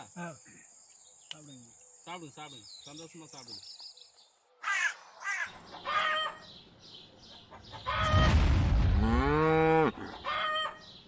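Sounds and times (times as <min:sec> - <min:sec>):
cow mooing: 0:09.0 - 0:10.1
chicken clucking: 0:10.0 - 0:10.8.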